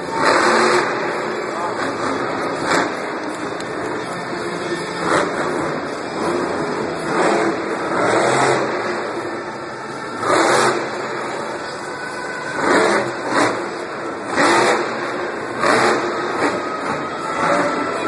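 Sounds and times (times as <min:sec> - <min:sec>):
truck engine revving: 0:00.0 - 0:18.0.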